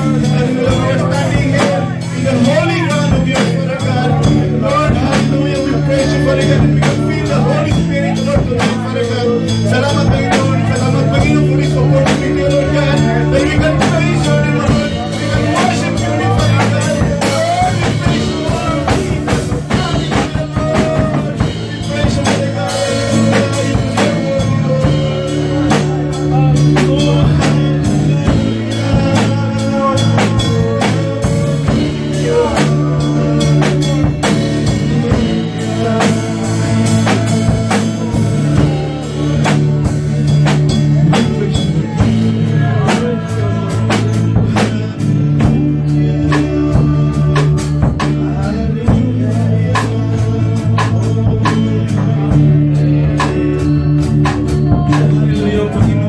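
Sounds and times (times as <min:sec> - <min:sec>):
drum kit beat: 0:00.0 - 0:56.0
keyboard chords: 0:00.0 - 0:56.0
man singing into a microphone: 0:00.0 - 0:56.0.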